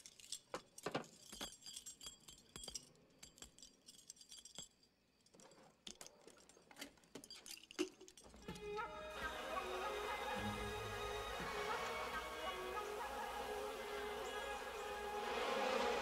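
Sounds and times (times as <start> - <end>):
metal dog tags clinking: 0.0 - 8.8.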